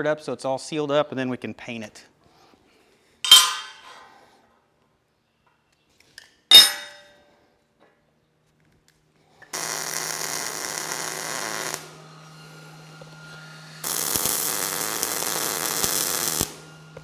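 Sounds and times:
welder arc crackling: 9.6 - 12.0, 13.8 - 17.0.

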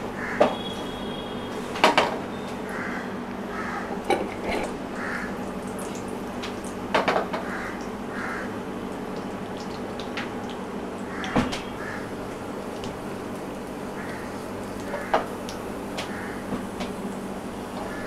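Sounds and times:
nuts sizzling in hot fat: 11.0 - 18.0.

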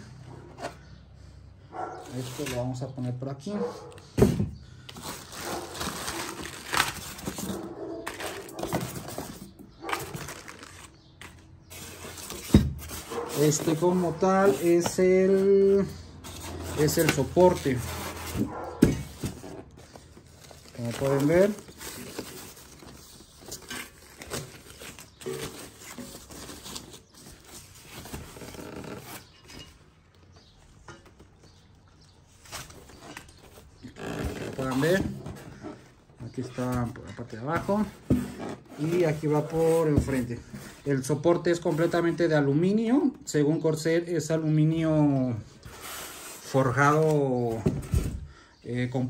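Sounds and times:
plastic bags crinkling: 4.9 - 11.2, 20.0 - 28.7
foam packaging shifting: 4.9 - 29.7, 32.3 - 42.2
plastic wrapping rustling: 4.9 - 30.1.

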